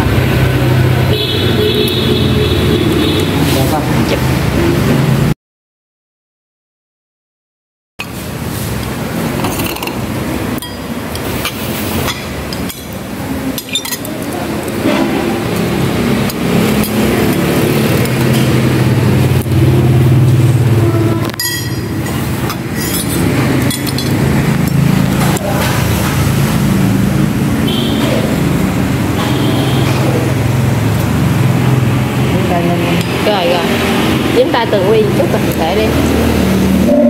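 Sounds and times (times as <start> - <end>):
passing engines rumble: 0.0 - 5.3, 8.1 - 37.0
spoons and bowls clinking: 9.4 - 14.9, 21.3 - 24.8.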